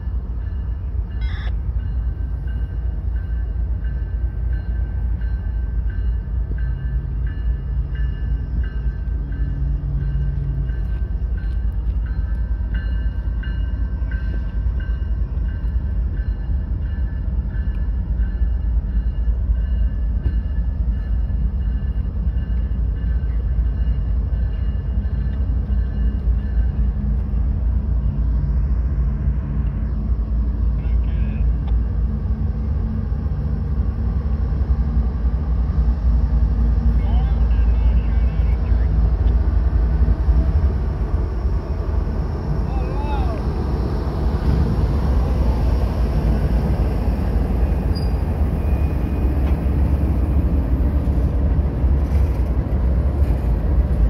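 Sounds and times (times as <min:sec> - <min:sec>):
crossing bell ringing: 0:00.0 - 0:28.2, 0:36.9 - 0:39.3
diesel locomotive rumble: 0:00.0 - 0:54.0.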